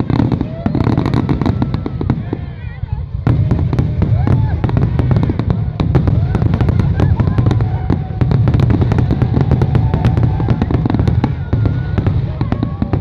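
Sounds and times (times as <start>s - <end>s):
fireworks bangs with crackle: 0.0s - 13.0s.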